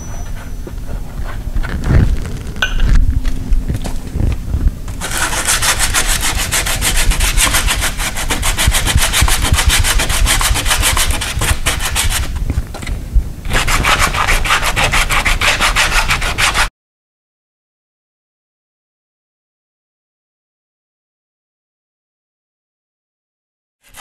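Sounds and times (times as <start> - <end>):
sandpaper scraping steel door: 5.0 - 12.4, 13.5 - 16.7.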